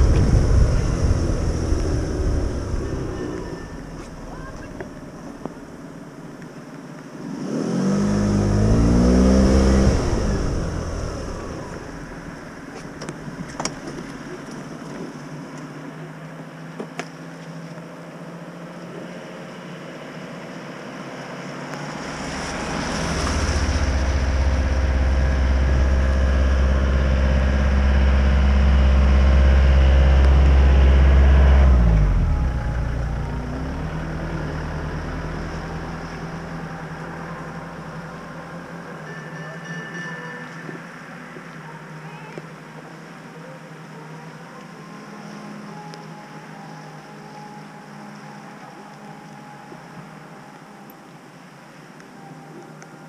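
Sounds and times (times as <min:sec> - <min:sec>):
vehicles passing on wet road: 0:00.0 - 0:39.4
deep engine with tyre hiss: 0:00.0 - 0:53.0.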